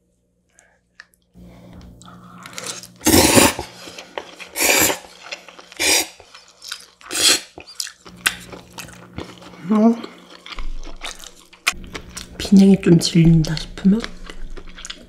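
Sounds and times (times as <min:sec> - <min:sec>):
soft chewing: 0:00.4 - 0:03.0, 0:03.7 - 0:15.0
loud noodle slurping: 0:02.4 - 0:06.3, 0:07.1 - 0:07.7.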